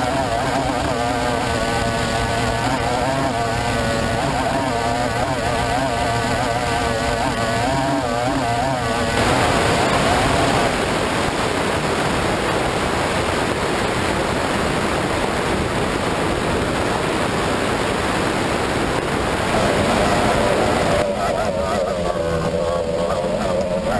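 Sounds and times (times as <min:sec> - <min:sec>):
outboard motor running: 0:00.0 - 0:23.9
rush of wind and water: 0:00.0 - 0:23.9.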